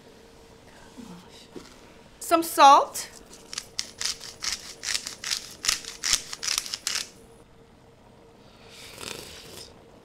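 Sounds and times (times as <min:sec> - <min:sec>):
salt grinder crunching crystals: 0:03.3 - 0:07.1.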